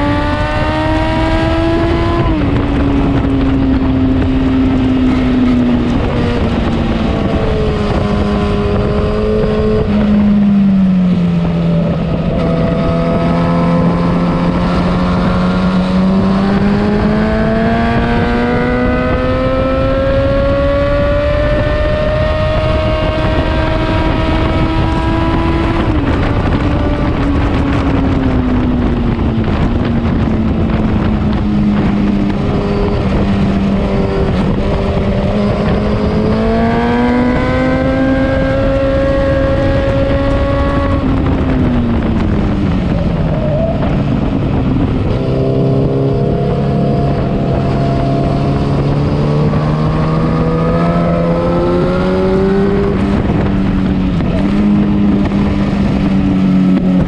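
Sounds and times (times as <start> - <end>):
motorcycle engine accelerating: 0.0 - 57.0
wind rush: 0.0 - 57.0.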